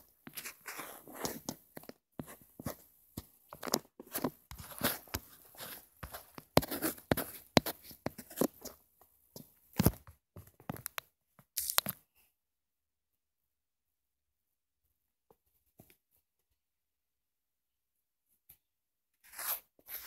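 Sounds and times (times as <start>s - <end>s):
phone handling taps and scrapes: 0.3s - 8.8s.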